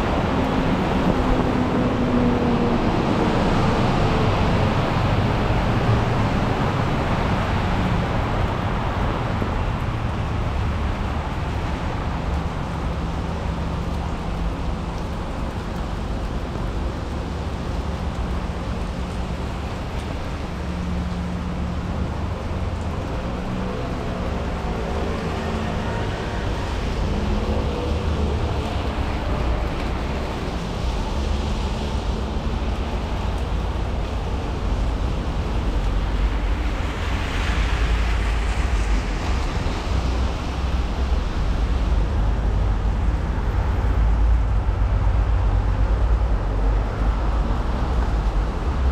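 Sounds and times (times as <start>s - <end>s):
vehicles passing on wet road: 0.0s - 48.9s.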